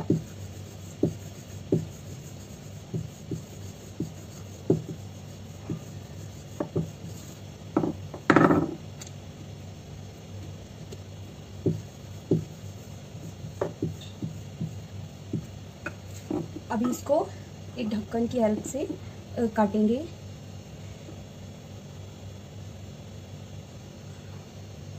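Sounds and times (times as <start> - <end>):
rolling pin knocking on board: 0.0 - 0.4, 1.0 - 2.0, 2.8 - 5.0, 6.5 - 7.0, 7.8 - 8.8, 11.6 - 12.6, 13.5 - 16.5.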